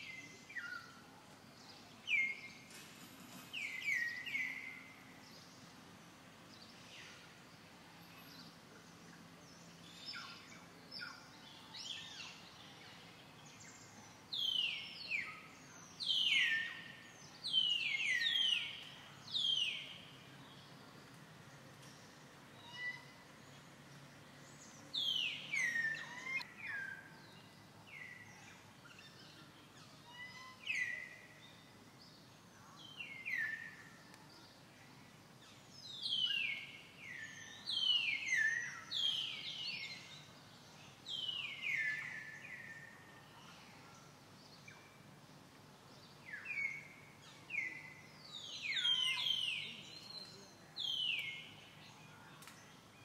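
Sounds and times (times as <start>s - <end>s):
faint steady background noise: 0.0s - 53.0s
birds calling with falling notes: 24.4s - 32.2s.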